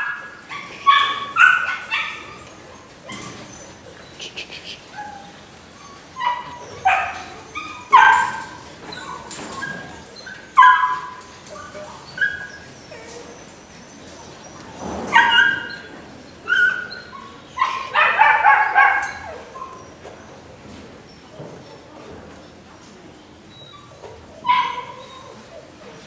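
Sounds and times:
puppy barking in high yaps: 0:00.0 - 0:02.4, 0:06.2 - 0:09.8, 0:10.5 - 0:11.3, 0:16.5 - 0:19.8, 0:24.4 - 0:25.3.

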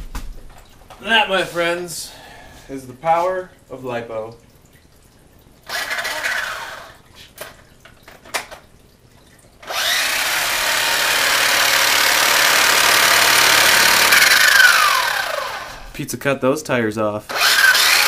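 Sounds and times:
toy car electric motor whirring: 0:05.7 - 0:07.0, 0:09.6 - 0:15.9, 0:17.3 - 0:18.0.

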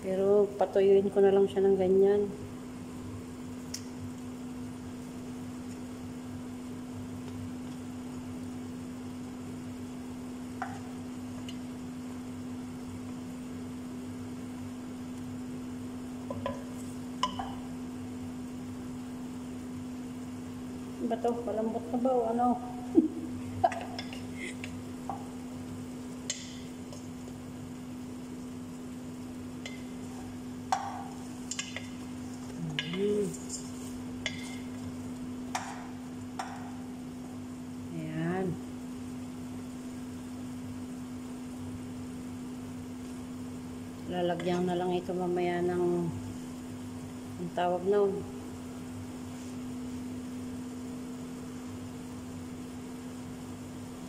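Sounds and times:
fish sizzling in a pot: 0:00.0 - 0:54.0
steady low hum: 0:00.0 - 0:54.0
wooden spoon stirring in pot: 0:16.1 - 0:17.7, 0:29.5 - 0:36.9
spoon knocking against pot: 0:16.3 - 0:17.6, 0:35.5 - 0:35.8.

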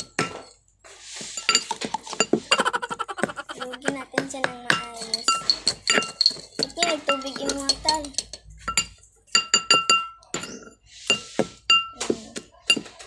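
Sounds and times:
utensil clinking against dish: 0:00.0 - 0:00.6, 0:01.2 - 0:13.0
person speaking: 0:02.0 - 0:05.6, 0:06.6 - 0:08.2.

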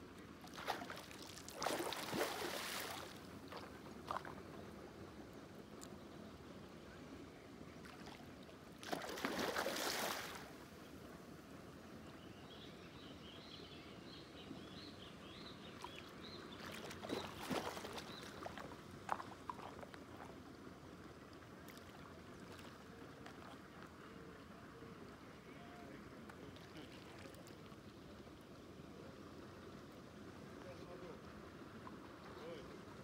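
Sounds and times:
fish splashing in water: 0:00.5 - 0:04.4, 0:08.8 - 0:10.5, 0:16.6 - 0:20.3.

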